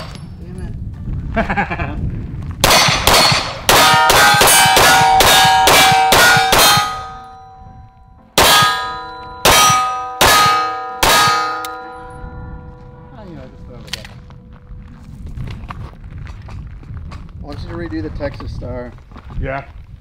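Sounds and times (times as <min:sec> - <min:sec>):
pistol shots: 0:02.6 - 0:07.3, 0:08.4 - 0:11.9
steel plate ringing clang: 0:02.7 - 0:13.8.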